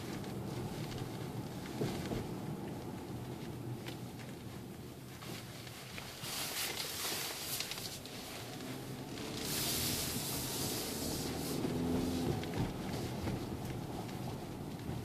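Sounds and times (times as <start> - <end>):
road and tyre noise: 0.0 - 15.0
car engine accelerating: 7.1 - 15.0.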